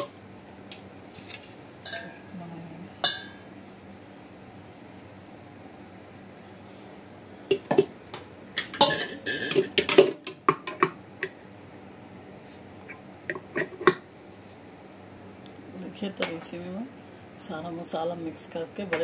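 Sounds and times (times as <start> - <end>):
kitchen utensils clattering: 8.6 - 10.9.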